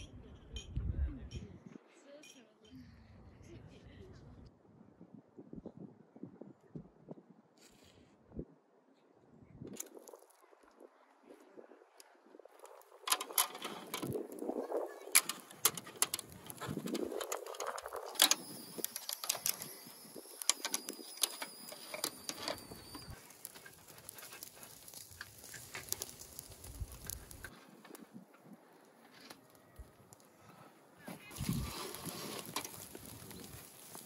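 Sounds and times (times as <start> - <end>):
metal skewers clinking: 13.0 - 14.2, 15.0 - 27.5.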